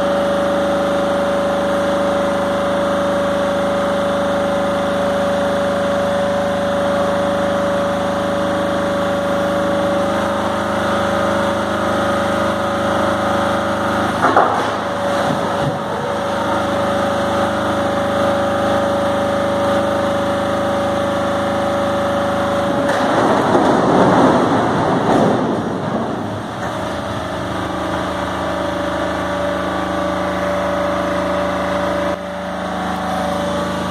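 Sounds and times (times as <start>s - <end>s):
engine whine: 0.0s - 33.9s
load sliding rumble: 22.3s - 33.9s.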